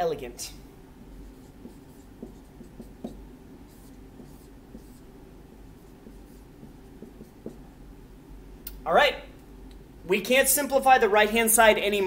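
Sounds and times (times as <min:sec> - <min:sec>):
marker writing on whiteboard: 0:01.1 - 0:07.7.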